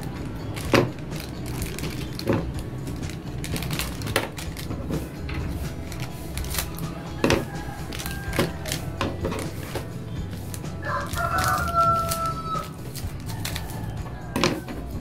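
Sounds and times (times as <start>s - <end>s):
background music: 0.0s - 15.0s
scissors snipping plastic wrapper: 5.9s - 9.6s, 10.6s - 14.7s
rooster crowing: 6.8s - 9.7s, 10.6s - 15.0s.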